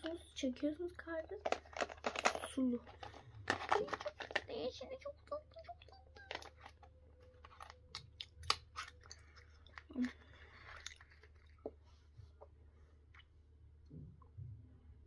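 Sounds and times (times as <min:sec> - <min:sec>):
person chewing: 0:06.3 - 0:11.8.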